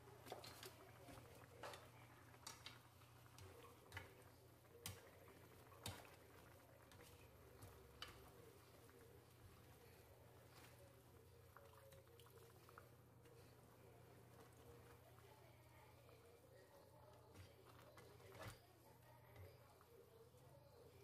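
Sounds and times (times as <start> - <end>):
tongs clicking on frying pan: 1.6 - 8.6.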